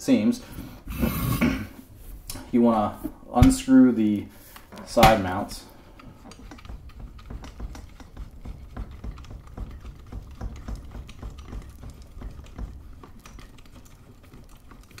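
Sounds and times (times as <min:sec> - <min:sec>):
thumbscrews clicking and scraping: 0:05.9 - 0:15.0.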